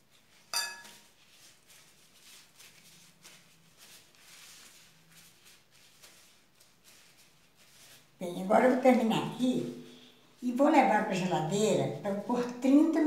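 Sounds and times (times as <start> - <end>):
plastic gloves rustling: 0.0 - 13.0.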